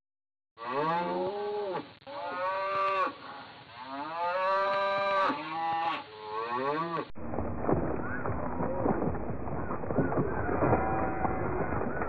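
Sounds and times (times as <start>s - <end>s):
cattle mooing: 0.6s - 3.2s, 3.8s - 7.1s.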